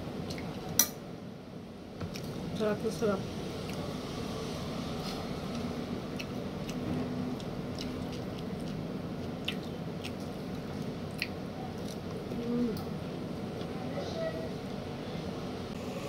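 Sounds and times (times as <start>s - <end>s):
person chewing: 4.9s - 13.7s.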